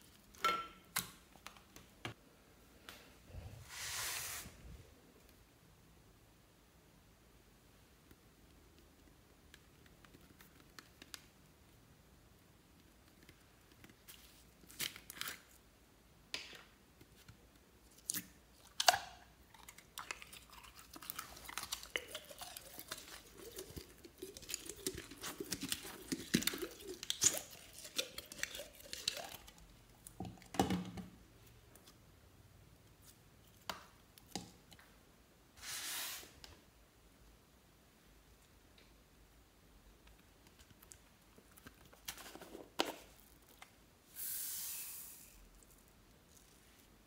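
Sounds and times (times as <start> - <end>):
slime crackling and popping: 20.8 - 29.6.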